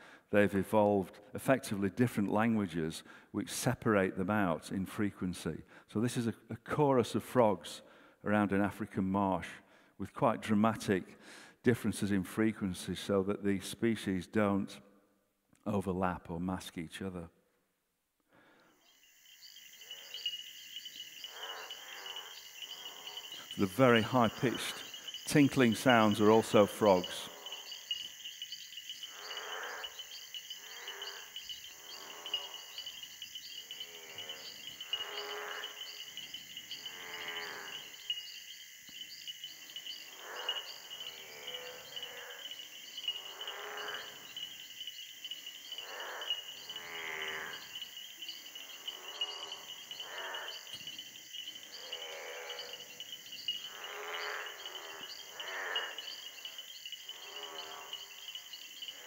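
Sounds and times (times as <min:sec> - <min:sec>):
lower frog calls: 0:18.4 - 0:59.0
high-pitched frog tinkling: 0:18.7 - 0:59.0.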